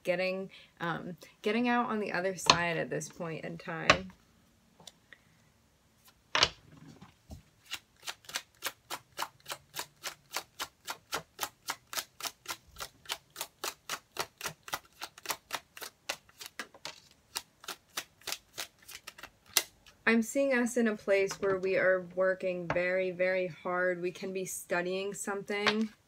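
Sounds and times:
cards being shuffled: 11.7s - 20.0s.

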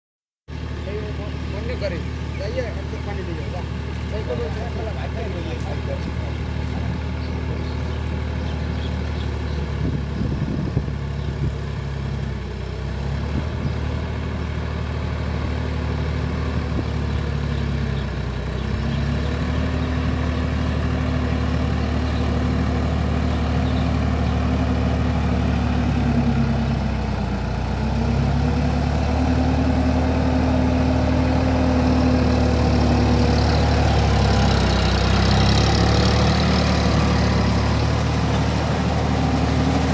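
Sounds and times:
tractor diesel engine: 0.5s - 39.9s.

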